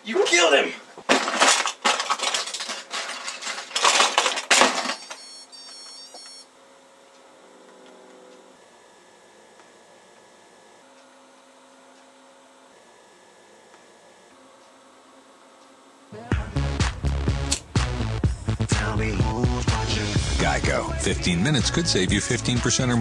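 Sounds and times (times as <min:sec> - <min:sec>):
faint steady hum: 0:00.0 - 0:23.0
rustling and clattering: 0:01.0 - 0:05.2.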